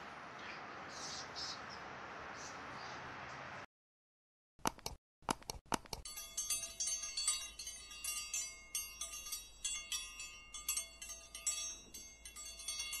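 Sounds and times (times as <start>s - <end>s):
tinkling bell-like chimes: 6.1s - 13.0s.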